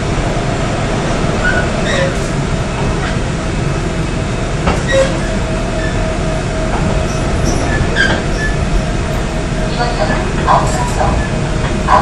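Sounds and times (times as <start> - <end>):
wheels rumbling on rail: 0.0 - 12.0
rail-joint clacks: 1.3 - 3.3, 4.6 - 6.0, 6.6 - 12.0.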